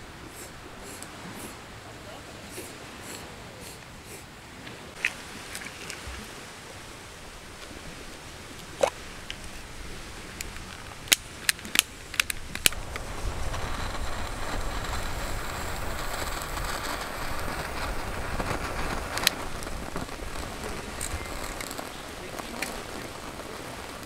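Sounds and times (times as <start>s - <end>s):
lighter flame hissing: 0.2s - 1.6s, 2.4s - 4.3s, 10.5s - 24.0s.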